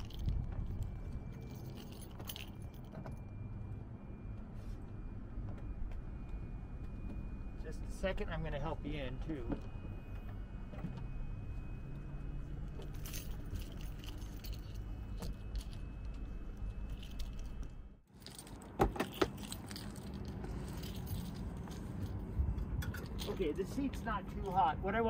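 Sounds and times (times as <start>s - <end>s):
metallic jangling and clicking: 0.0s - 2.9s, 12.8s - 22.2s.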